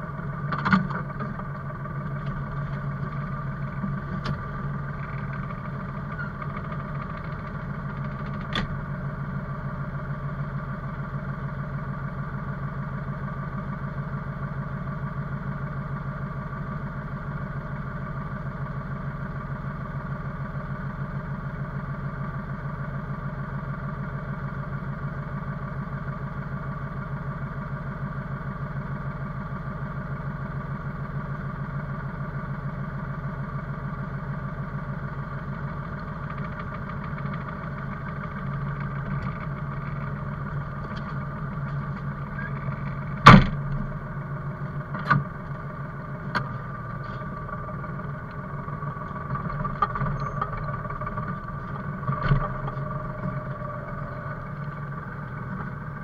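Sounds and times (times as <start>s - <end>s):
machine engine running: 0.0s - 56.0s
sharp knocks: 43.2s - 43.6s.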